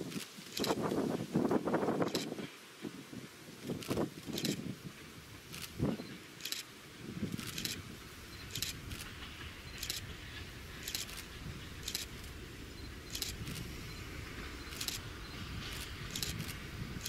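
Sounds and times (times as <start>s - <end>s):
diesel locomotive rumbling: 4.4s - 17.0s.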